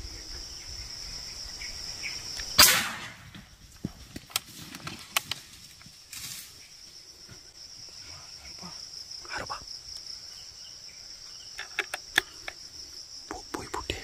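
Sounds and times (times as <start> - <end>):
high insect buzz: 0.0 - 4.0, 5.4 - 14.0
air rifle shot: 2.6 - 3.3.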